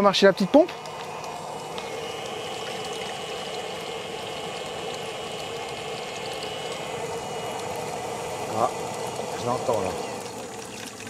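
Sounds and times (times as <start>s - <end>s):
thin high whine: 0.0s - 10.5s
electric water pump running: 0.0s - 11.0s.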